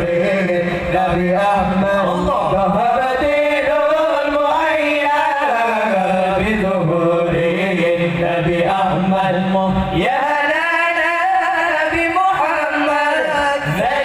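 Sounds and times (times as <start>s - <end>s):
men singing devotional chant: 0.0s - 14.0s.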